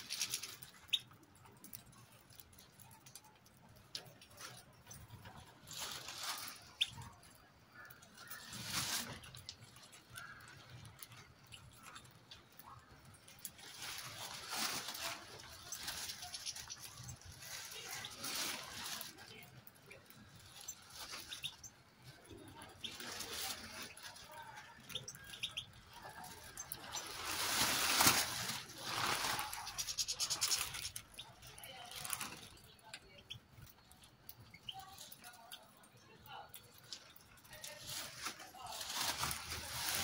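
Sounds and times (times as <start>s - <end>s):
pattering ticks: 0.0s - 5.5s, 6.3s - 14.0s, 14.6s - 28.2s, 28.9s - 37.6s
rustling: 0.0s - 35.2s, 36.4s - 40.0s
birds pecking seed clicks: 0.0s - 37.8s
bird chirps: 20.7s - 21.8s, 24.9s - 25.9s.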